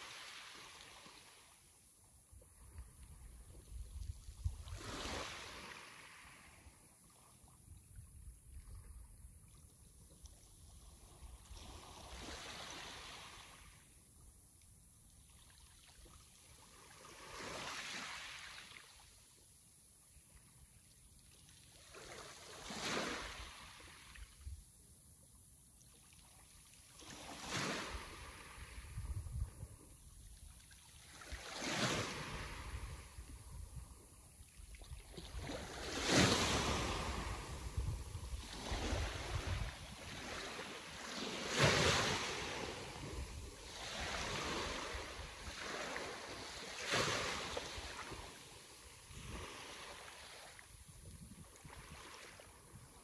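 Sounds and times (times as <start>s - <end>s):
sea waves washing ashore: 0.0s - 1.7s, 4.6s - 7.1s, 31.0s - 34.3s, 35.2s - 53.0s.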